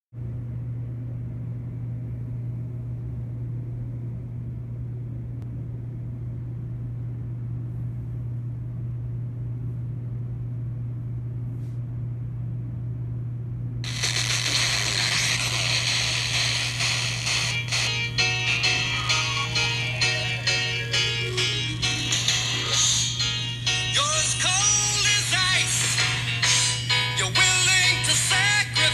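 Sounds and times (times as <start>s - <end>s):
steady low hum: 0.2s - 28.9s
radio broadcast: 13.8s - 23.2s
radio static hiss: 13.8s - 23.2s.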